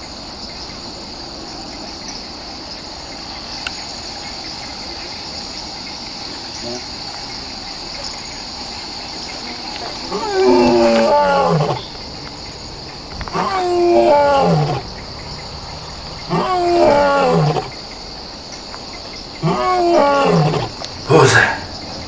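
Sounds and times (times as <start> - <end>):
crickets chirping: 0.0 - 22.0
lion roaring: 9.9 - 12.0, 13.2 - 14.9, 16.0 - 17.8, 19.4 - 21.4.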